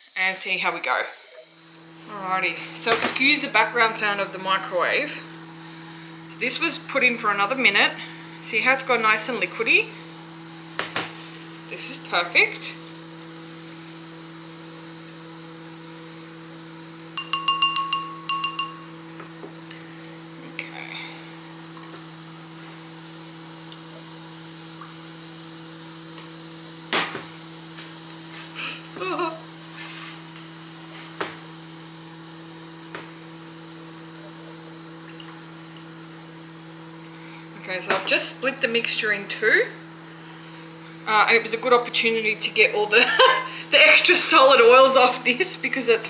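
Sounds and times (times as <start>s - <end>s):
steady low hum: 0.0s - 46.0s
stick clinking against ceramic bowl: 17.2s - 18.8s.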